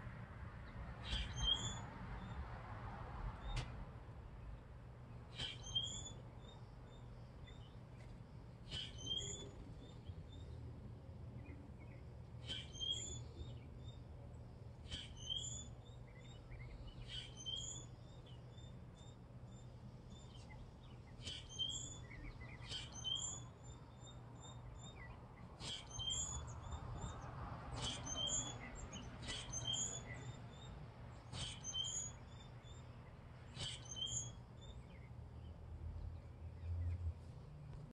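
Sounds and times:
faint bird chirps: 1.0s - 2.4s, 5.3s - 10.6s, 11.3s - 14.2s, 14.8s - 27.2s, 27.8s - 35.6s.

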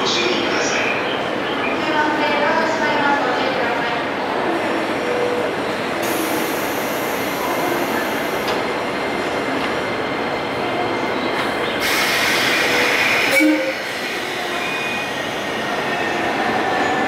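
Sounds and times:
loud hiss: 11.8s - 14.4s.

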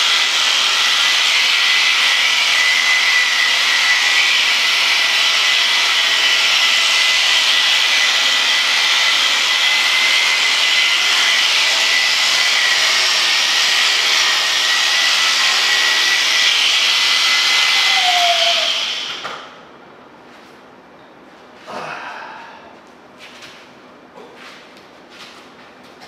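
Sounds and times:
electric shears whining: 0.0s - 19.5s.

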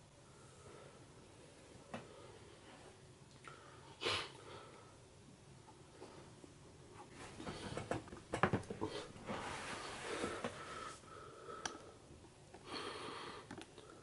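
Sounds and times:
person breathing close to microphone: 8.8s - 14.0s.

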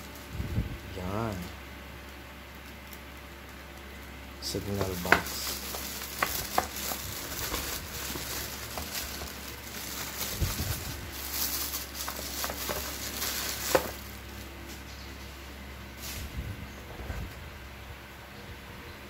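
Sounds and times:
plastic wrapping crinkling: 2.0s - 14.8s.

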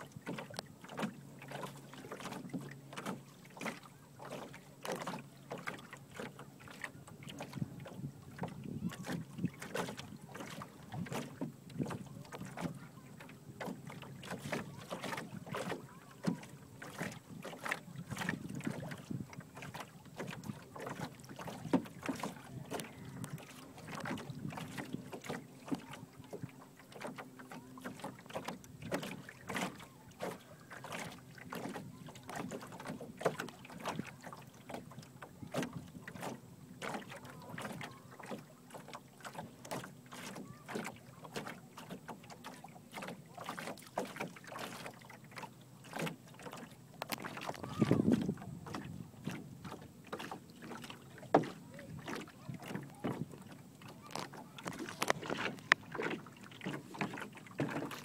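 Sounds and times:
small waves splashing against hull: 0.0s - 58.0s
wind buffeting microphone: 7.3s - 12.0s, 17.2s - 19.5s, 47.4s - 49.7s.

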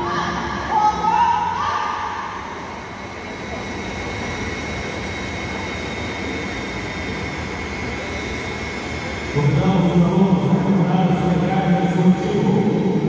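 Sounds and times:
floor fan rushing: 0.0s - 13.0s
thin high steady tone: 0.0s - 13.0s.

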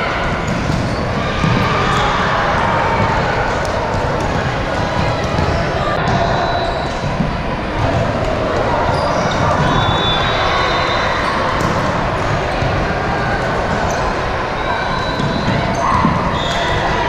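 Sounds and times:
echoing gym noise: 0.0s - 17.0s
sneakers squeaking on hardwood: 14.7s - 17.0s.

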